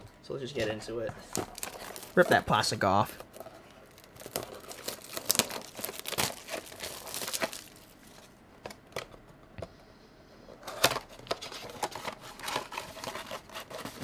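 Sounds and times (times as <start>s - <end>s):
plastic shrink-wrap crinkling: 1.2s - 8.3s.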